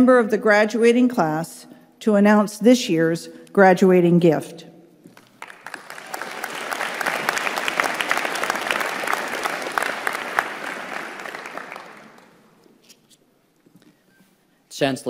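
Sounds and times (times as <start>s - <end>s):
audience applauding: 5.1s - 12.6s.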